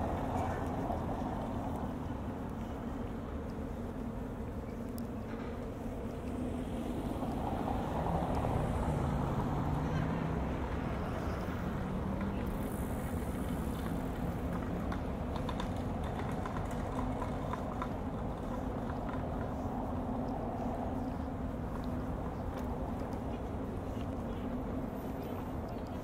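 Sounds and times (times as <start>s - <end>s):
engine humming: 0.0s - 26.0s
street noise: 0.0s - 26.0s
light clicks and taps: 13.2s - 26.0s.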